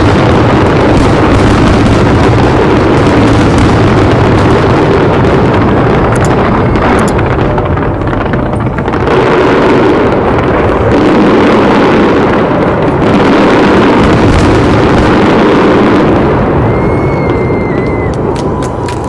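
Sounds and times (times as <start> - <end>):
fireworks barrage: 0.0 - 19.0.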